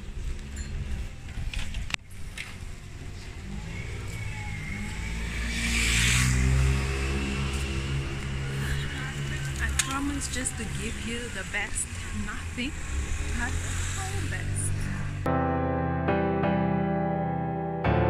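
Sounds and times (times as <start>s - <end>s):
vehicle passing close by: 3.0s - 15.3s
hiss of passing vehicle: 5.1s - 9.1s.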